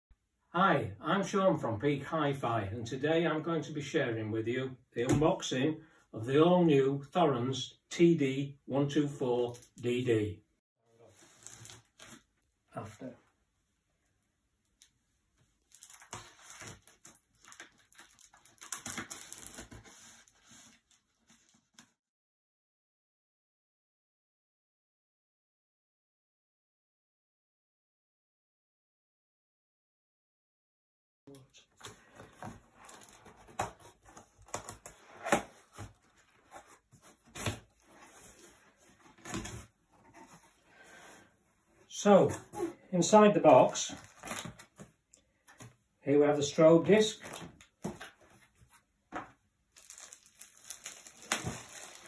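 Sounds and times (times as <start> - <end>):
packing tape ripping: 15.7 - 20.2, 44.0 - 44.6, 49.8 - 52.0
cardboard box being opened: 31.9 - 41.2, 44.0 - 44.9, 49.8 - 52.0.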